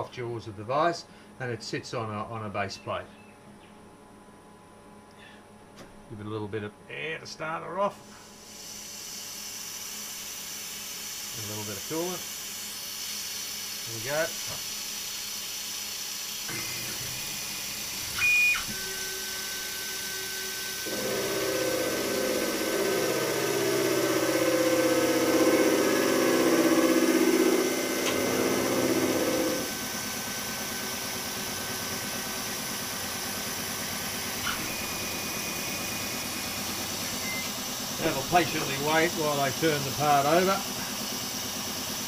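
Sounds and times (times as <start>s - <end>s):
coolant mist hissing: 8.1s - 18.1s, 18.8s - 42.0s
machine high whine: 16.4s - 41.3s
milling machine cutting metal: 16.5s - 40.9s
short electronic beep: 34.6s - 37.6s.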